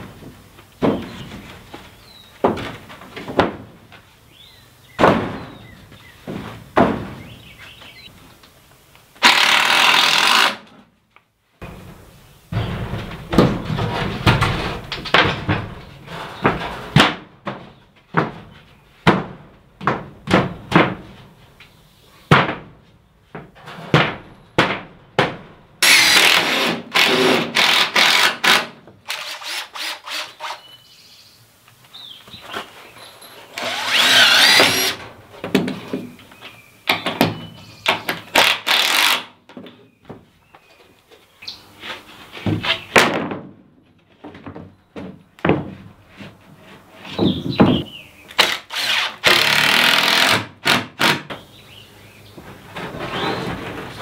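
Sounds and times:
cordless drill driving screws: 9.2s - 10.6s, 25.8s - 30.6s, 33.6s - 35.0s, 38.4s - 39.2s, 48.4s - 51.2s.

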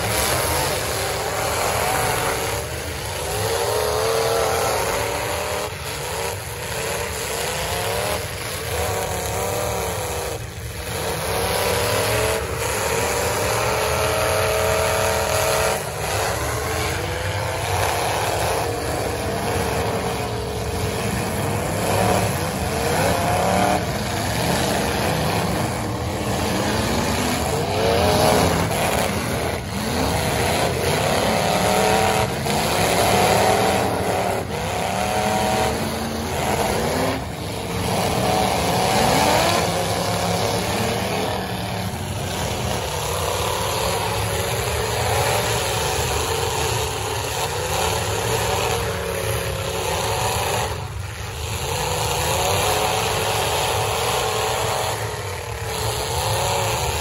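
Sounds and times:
car engines revving: 0.0s - 57.0s.

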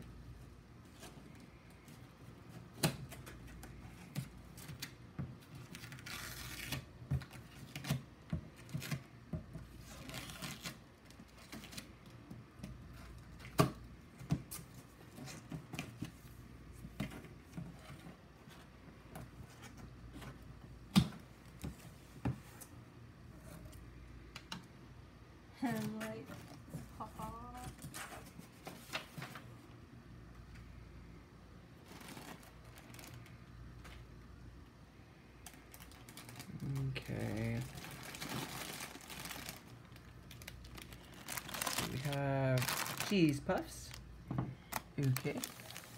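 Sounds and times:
packaging rustling: 31.8s - 34.0s, 35.4s - 45.9s.

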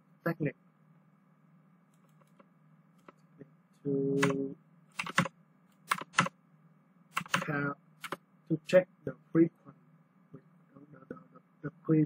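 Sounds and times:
computer keyboard clicks: 4.2s - 4.4s, 5.0s - 5.3s, 5.9s - 6.3s, 7.2s - 8.2s.

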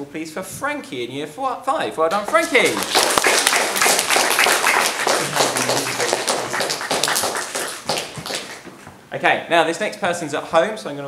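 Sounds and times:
group of people clapping: 2.4s - 8.7s.

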